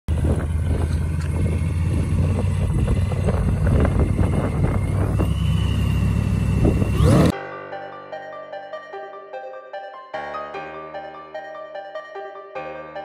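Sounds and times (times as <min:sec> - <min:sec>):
engines idling: 0:00.1 - 0:07.3
wind buffeting microphone: 0:00.1 - 0:07.3.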